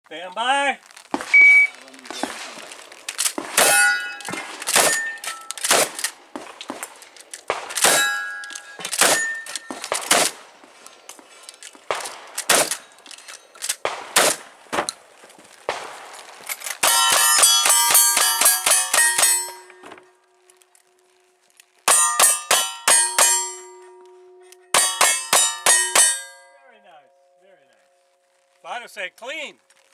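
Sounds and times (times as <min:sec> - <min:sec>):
rifle shots: 0:01.1 - 0:10.5, 0:11.9 - 0:13.0, 0:13.6 - 0:14.9, 0:15.6 - 0:19.9
steel targets clanging: 0:03.5 - 0:06.2, 0:07.5 - 0:10.4, 0:16.6 - 0:20.1, 0:21.9 - 0:26.9.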